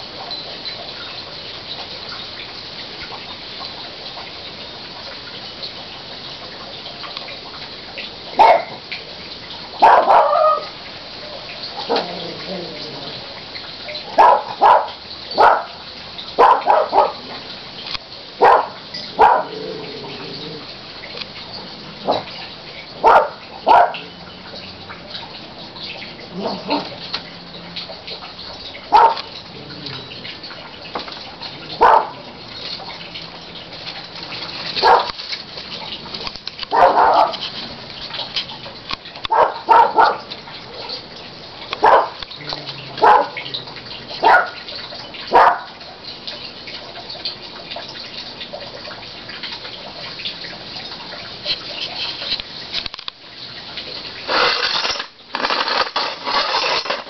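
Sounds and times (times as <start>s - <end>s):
dog barking: 8.4s - 8.8s, 9.8s - 10.7s, 14.2s - 15.8s, 16.4s - 17.2s, 18.4s - 19.6s, 23.0s - 24.0s, 26.4s - 26.9s, 28.9s - 29.2s, 31.8s - 32.2s, 34.8s - 35.1s, 36.7s - 37.4s, 39.3s - 40.3s, 41.8s - 42.2s, 43.0s - 43.4s, 44.2s - 44.6s, 45.3s - 45.7s.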